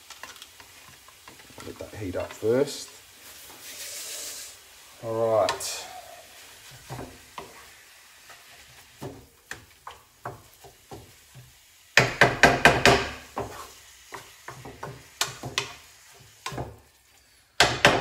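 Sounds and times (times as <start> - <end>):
wooden spatula knocking on pan: 6.8 - 7.6, 9.0 - 15.8, 16.4 - 16.8, 17.6 - 18.0.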